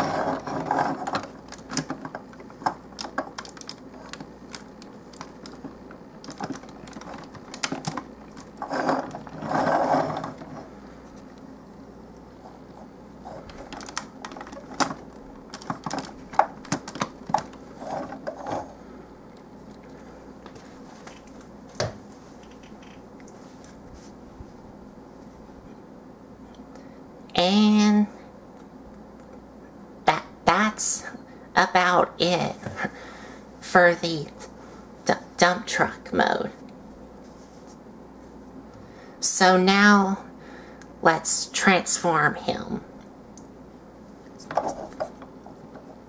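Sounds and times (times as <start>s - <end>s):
rustling handling noise: 0.0s - 11.5s, 12.3s - 25.6s, 36.8s - 38.6s.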